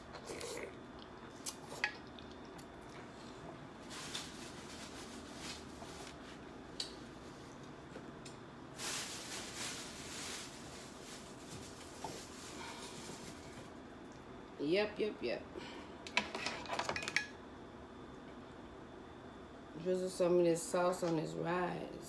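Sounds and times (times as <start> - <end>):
rustling: 8.8 - 13.7.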